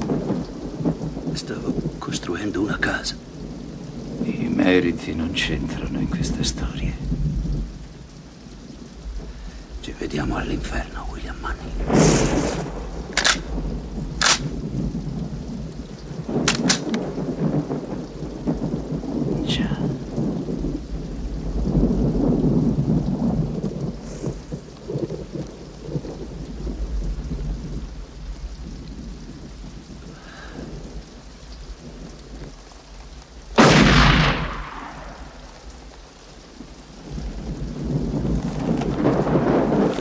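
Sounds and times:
heavy rain: 0.0s - 40.0s
rumbling thunder: 0.0s - 40.0s
loud gunshot: 33.6s - 35.3s.

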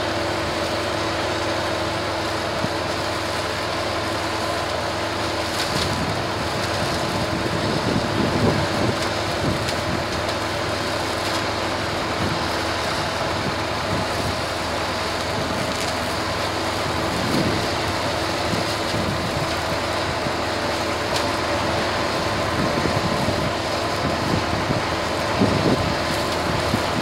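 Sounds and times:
tractor diesel engine running: 0.0s - 27.0s.

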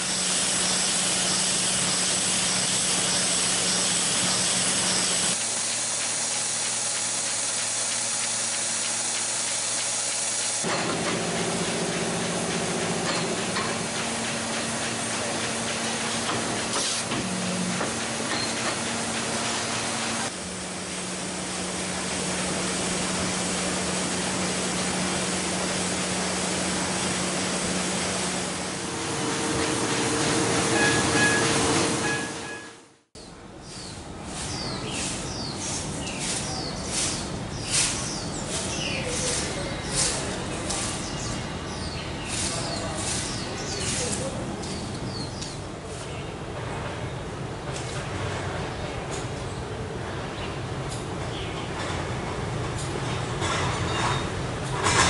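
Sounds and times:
printing press running: 0.0s - 33.0s.

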